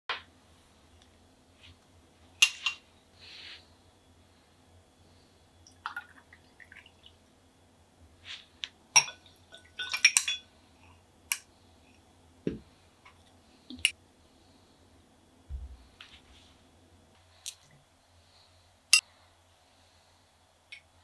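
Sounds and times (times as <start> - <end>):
glassware clinking: 9.0 - 10.5.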